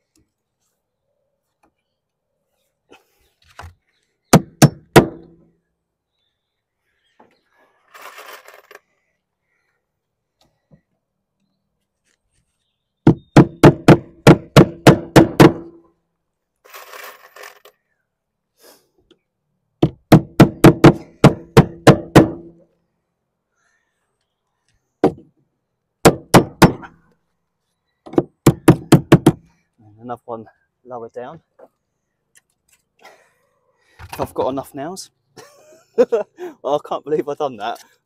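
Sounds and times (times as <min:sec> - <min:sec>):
hammer driving nails: 0:04.3 - 0:05.3, 0:13.0 - 0:15.8, 0:26.0 - 0:26.9, 0:28.1 - 0:29.5.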